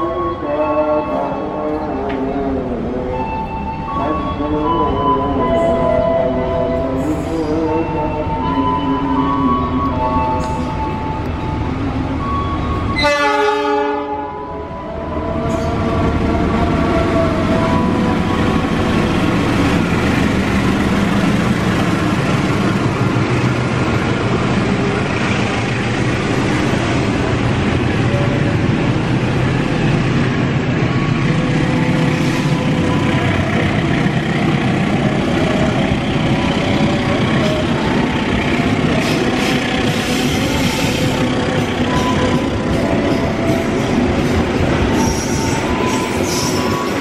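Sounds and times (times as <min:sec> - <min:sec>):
diesel locomotive passing: 0:00.0 - 0:47.0
freight wagons rumbling on rails: 0:14.9 - 0:47.0.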